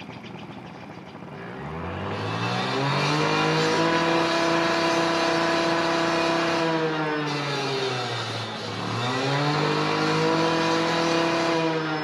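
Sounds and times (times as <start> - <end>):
bird trilling: 0.0 - 1.6
motor engine revving: 0.0 - 12.0.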